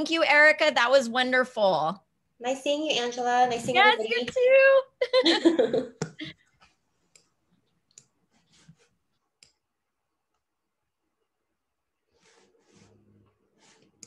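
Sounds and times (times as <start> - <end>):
computer mouse clicks: 7.1 - 8.2, 9.4 - 9.6.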